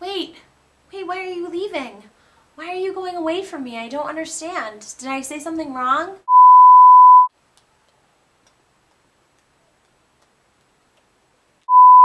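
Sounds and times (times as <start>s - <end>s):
electronic beep tone: 6.3s - 7.3s, 11.7s - 12.0s.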